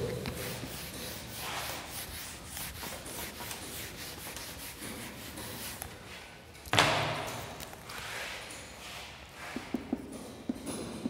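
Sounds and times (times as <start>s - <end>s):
eraser rubbing on whiteboard: 0.0s - 5.9s.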